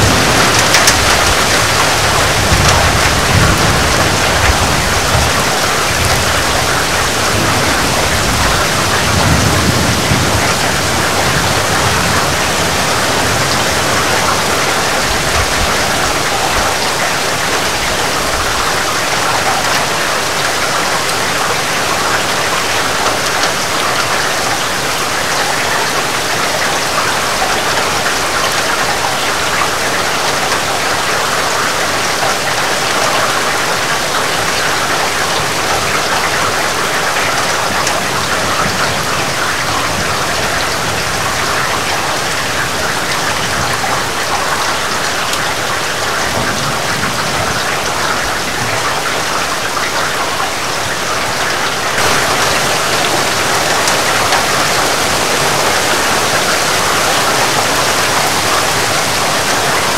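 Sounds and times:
distant thunder rumble: 0.0s - 21.1s, 52.0s - 59.9s
heavy rain falling: 0.0s - 59.9s.

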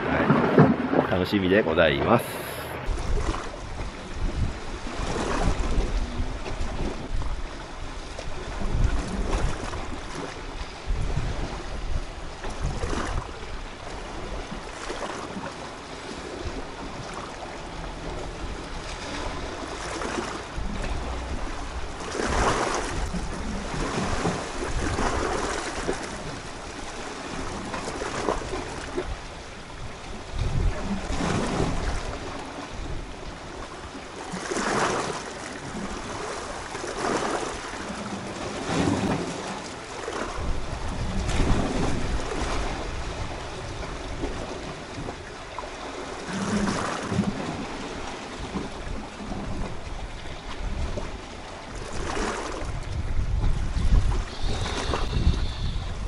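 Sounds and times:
wind buffeting microphone: 0.0s - 34.0s, 40.2s - 56.0s
waves washing against rocks: 0.0s - 49.9s, 50.5s - 56.0s.

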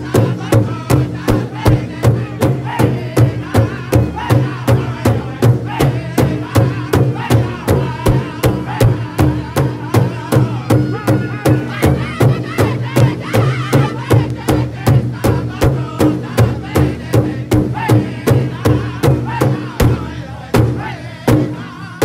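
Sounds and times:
large drum beating: 0.0s - 22.0s
men singing in high voices: 0.0s - 22.0s.

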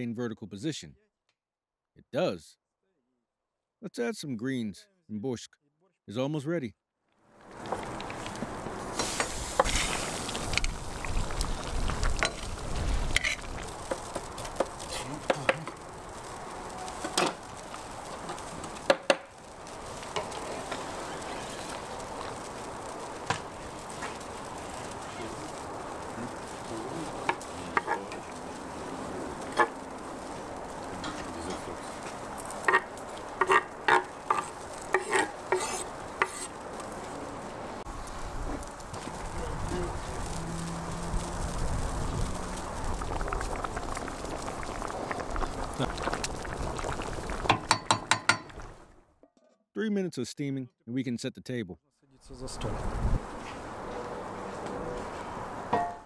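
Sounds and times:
steady hiss of cooking: 7.4s - 48.9s
knife scraping on wooden board: 33.4s - 36.5s.

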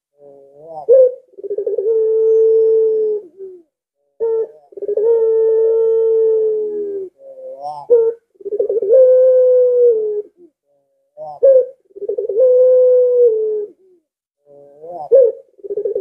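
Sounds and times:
dove cooing: 0.2s - 10.6s, 11.2s - 16.0s.

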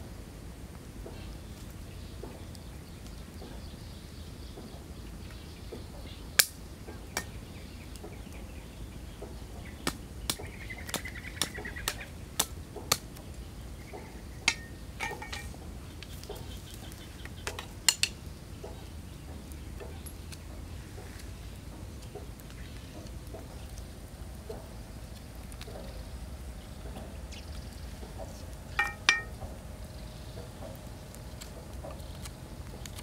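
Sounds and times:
knife chopping wooden stick: 9.8s - 13.1s.

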